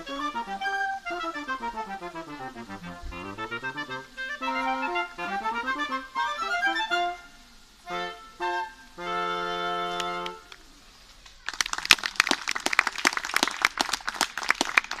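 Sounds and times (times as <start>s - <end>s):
chamber ensemble playing chords: 0.0s - 10.5s
audience applause: 11.3s - 15.0s.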